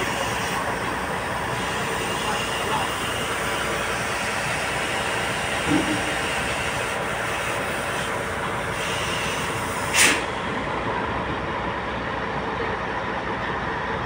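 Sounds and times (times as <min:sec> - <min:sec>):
diesel engine running: 0:00.0 - 0:14.0
air hiss: 0:08.7 - 0:10.5.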